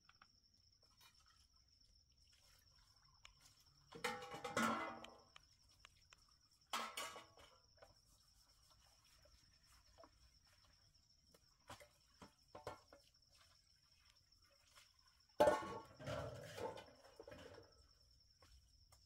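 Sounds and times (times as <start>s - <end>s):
crickets chirping: 0.0s - 19.0s
dishes clinking: 4.0s - 5.1s.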